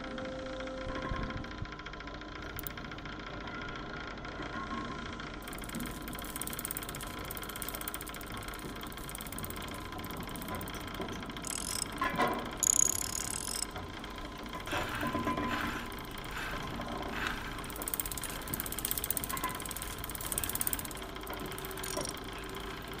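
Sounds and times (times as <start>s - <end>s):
clicking and clattering: 5.4s - 13.8s, 17.2s - 22.6s
clockwork gears whirring: 5.4s - 23.0s.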